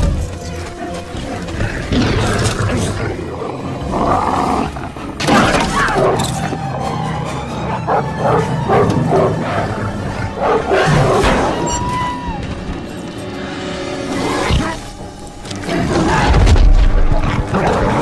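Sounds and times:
dramatic film score: 0.0s - 18.0s
dogs barking and snarling: 0.6s - 11.4s, 17.0s - 18.0s.

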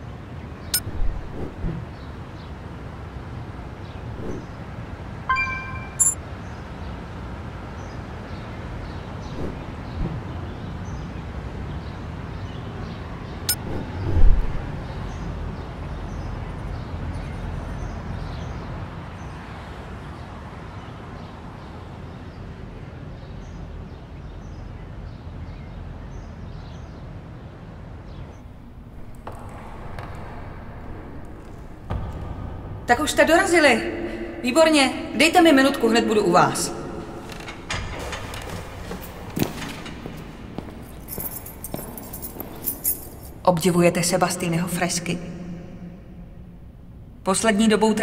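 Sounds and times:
short ringing tone: 5.3s - 6.2s
distant traffic rumble: 22.5s - 48.0s
birds chirping: 32.9s - 45.0s.

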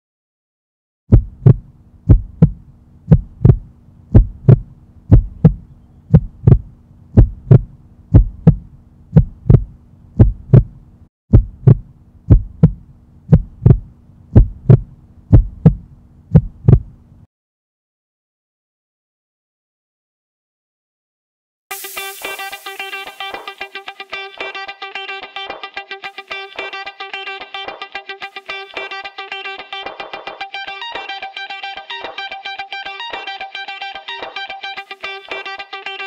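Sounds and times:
heartbeat thumps: 1.1s - 17.0s
low steady hum: 1.1s - 17.2s.

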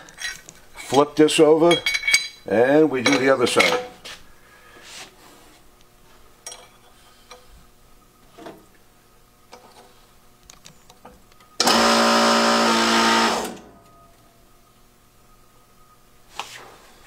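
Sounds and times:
steel parts clinking: 0.0s - 3.9s, 6.4s - 7.4s
hydraulic press pump motor whining: 11.6s - 13.7s.

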